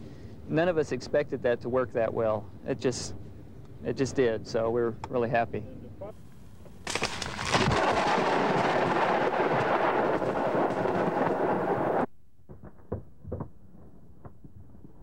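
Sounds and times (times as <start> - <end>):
thunder crack and rumble: 6.9 - 15.0.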